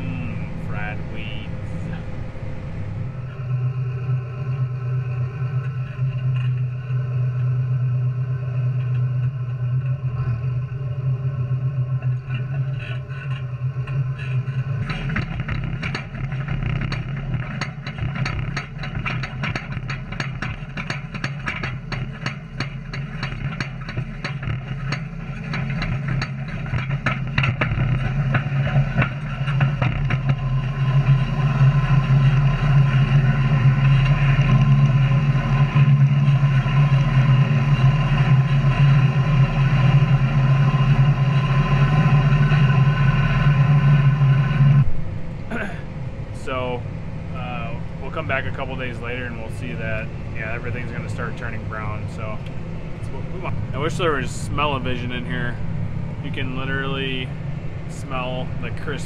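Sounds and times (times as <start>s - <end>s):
tractor engine hum: 0.0s - 59.0s.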